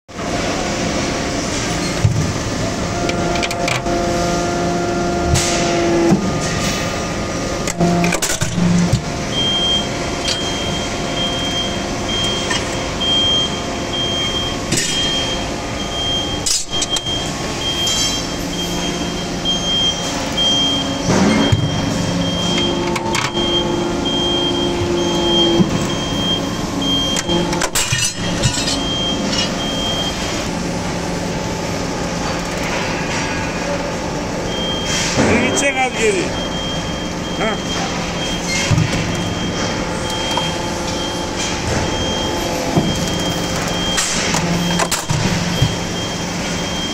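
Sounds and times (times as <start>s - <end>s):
hydraulic press pump hum: 0.1s - 35.5s, 36.3s - 46.9s
high beeps: 9.3s - 27.5s, 34.5s - 46.9s.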